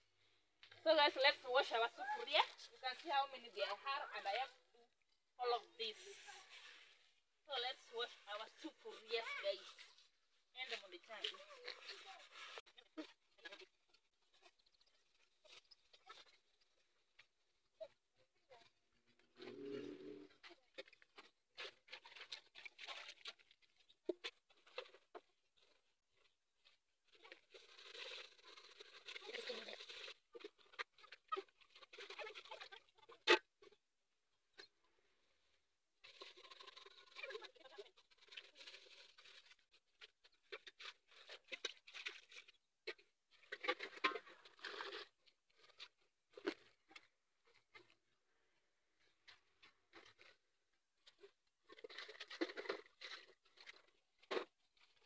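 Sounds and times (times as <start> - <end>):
scrubbing pots: 0.8 - 33.8, 34.5 - 48.1, 49.2 - 55.0
water splashing: 19.4 - 33.2.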